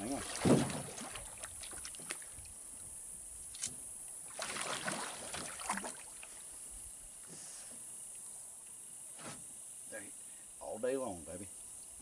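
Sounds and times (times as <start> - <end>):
water sloshing and swirling: 0.0 - 2.8, 3.5 - 7.3
knocks from boat: 0.4 - 1.0.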